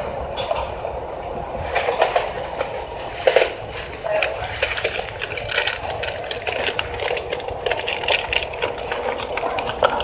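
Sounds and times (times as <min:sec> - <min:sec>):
dense crackling and clicking: 0:01.7 - 0:10.0.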